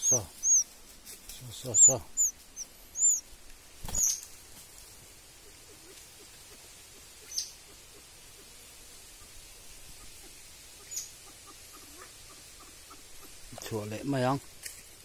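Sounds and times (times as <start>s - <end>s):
bird chirping: 0.0s - 0.8s, 1.4s - 4.3s, 5.5s - 8.5s, 10.0s - 13.5s.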